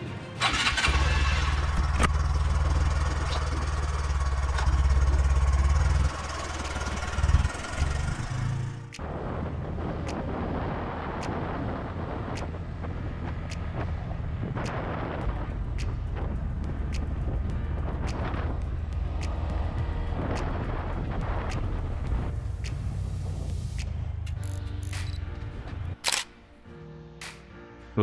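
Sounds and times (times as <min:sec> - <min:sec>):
engine and road noise while riding: 0:00.0 - 0:27.5
motorcycle engine starting and idling: 0:00.4 - 0:08.9
motorcycle engine revving: 0:00.4 - 0:09.0.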